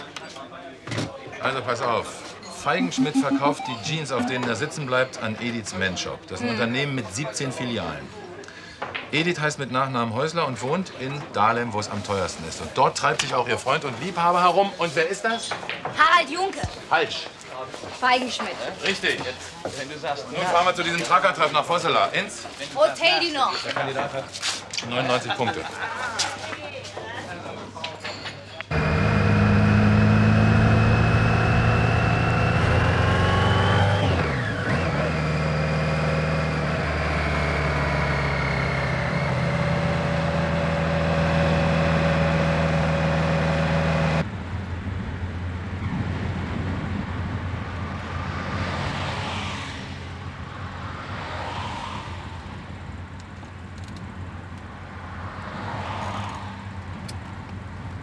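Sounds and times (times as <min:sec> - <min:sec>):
car engine accelerating: 0:28.7 - 0:44.3
passing traffic whooshes: 0:30.8 - 0:58.0.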